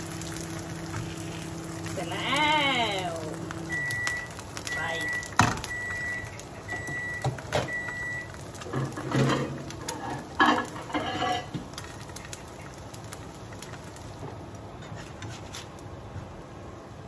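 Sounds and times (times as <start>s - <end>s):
appliance beeping: 0.0s - 9.8s.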